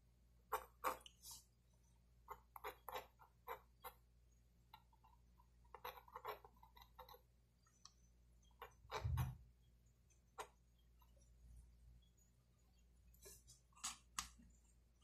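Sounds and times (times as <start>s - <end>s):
pencil scratching on paper: 0.5s - 1.6s, 2.2s - 4.0s, 4.9s - 7.4s.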